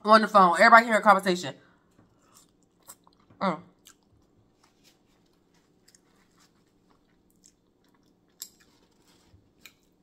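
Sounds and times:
wet chewing and mouth smacks: 0:02.1 - 0:10.0.

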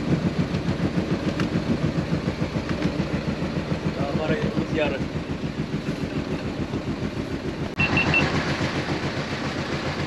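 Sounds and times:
boat engine idling: 0:00.0 - 0:10.0
quick high beeps: 0:07.8 - 0:08.3.

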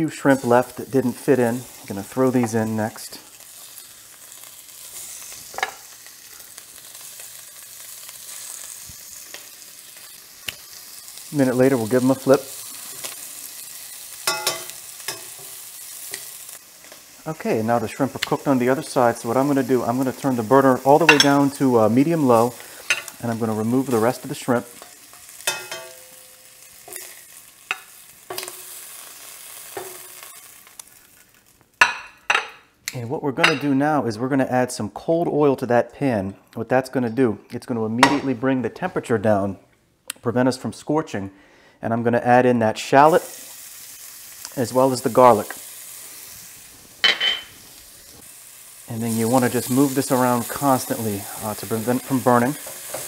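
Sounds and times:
shrimp sizzling in oil: 0:00.0 - 0:32.5, 0:43.0 - 0:53.0
metal tongs clinking on pan: 0:14.2 - 0:16.3, 0:21.0 - 0:21.4, 0:24.8 - 0:28.6.

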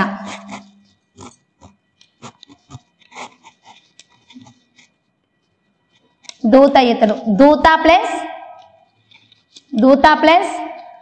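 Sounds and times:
chalk writing on blackboard: 0:00.0 - 0:05.0.

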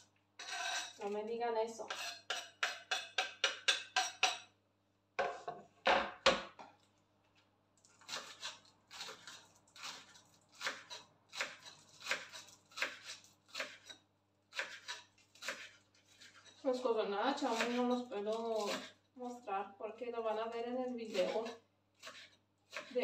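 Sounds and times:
clinks and scrapes at mixing bowl: 0:00.4 - 0:01.0, 0:01.8 - 0:04.4
knife chopping on wooden board: 0:01.9 - 0:04.5, 0:08.1 - 0:16.5, 0:21.1 - 0:23.0.

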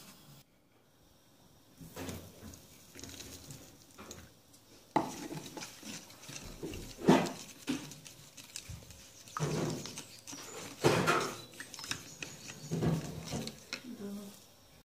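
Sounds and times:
wooden stick scraping plastic: 0:02.0 - 0:14.0
water pouring into plastic tub: 0:05.0 - 0:13.8.

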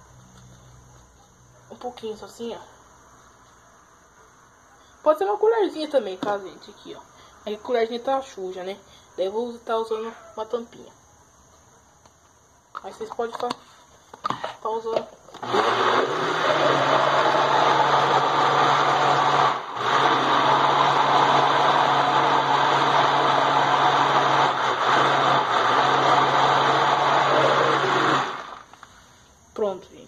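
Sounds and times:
kitchen blender running: 0:15.4 - 0:28.7.

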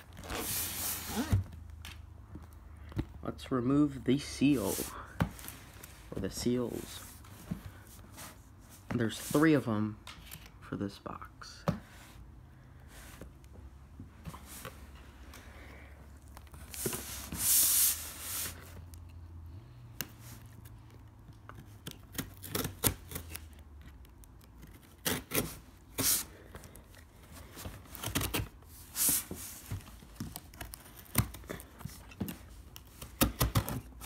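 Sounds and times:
rips scrapes and clicks on cardboard: 0:20.0 - 0:27.0, 0:27.9 - 0:34.0.

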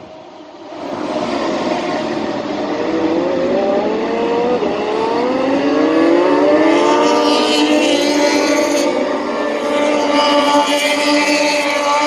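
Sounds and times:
race motorcycles accelerating: 0:00.6 - 0:12.0.

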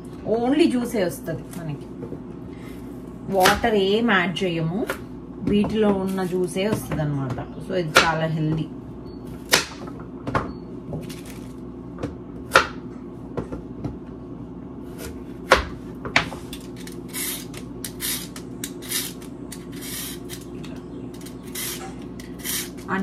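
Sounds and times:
peeler scraping carrots: 0:16.7 - 0:20.5, 0:21.1 - 0:23.0.

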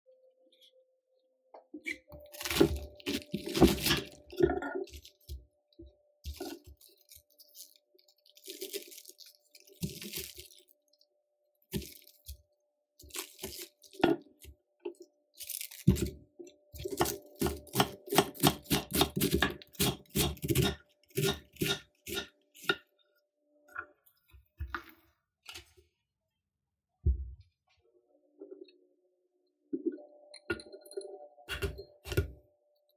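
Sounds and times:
knife cutting cabbage: 0:02.1 - 0:05.3, 0:06.3 - 0:10.6, 0:11.7 - 0:12.4, 0:13.0 - 0:14.2, 0:16.8 - 0:22.9.

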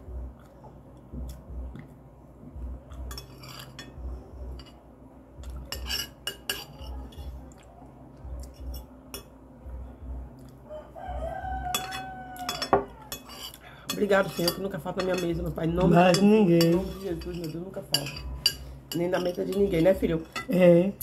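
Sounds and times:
metal spoon clinking on glass plates: 0:03.1 - 0:04.0, 0:05.7 - 0:07.2, 0:11.7 - 0:20.9
rooster crowing: 0:10.7 - 0:13.5.

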